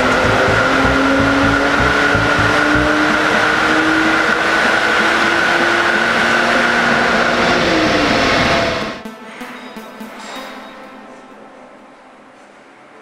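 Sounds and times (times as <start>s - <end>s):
car engine at full throttle: 0.0s - 9.0s.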